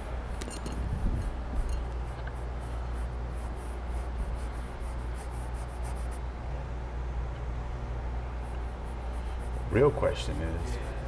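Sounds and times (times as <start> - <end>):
steady low hum: 0.0 - 11.0
paintbrush rubbing on canvas: 1.2 - 6.3, 8.3 - 11.0.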